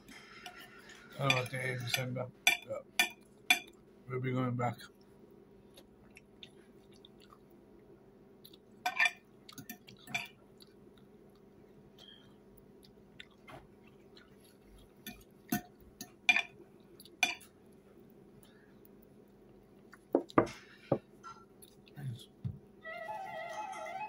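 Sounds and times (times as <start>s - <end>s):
faint room hum: 0.0s - 24.0s
person chewing food: 5.6s - 22.0s.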